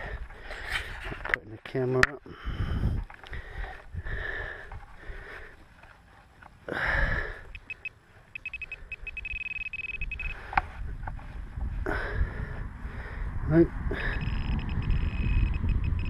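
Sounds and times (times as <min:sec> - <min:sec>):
metal detector pinpointer beeping: 0:07.5 - 0:10.4, 0:14.0 - 0:16.0.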